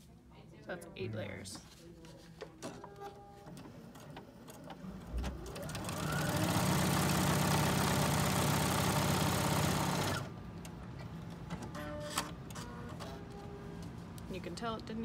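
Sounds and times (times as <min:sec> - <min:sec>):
sewing machine stitching: 0:04.6 - 0:10.3.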